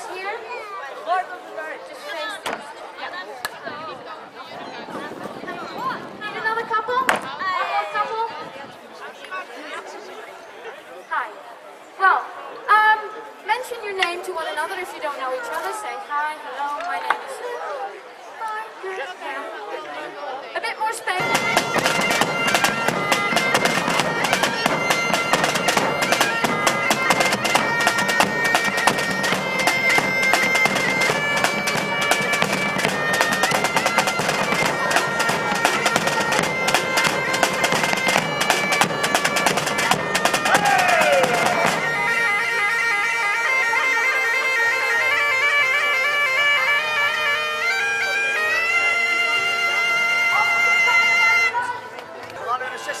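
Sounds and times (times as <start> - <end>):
drums beating: 21.2 - 42.9
bagpipes playing over drone: 21.2 - 51.6.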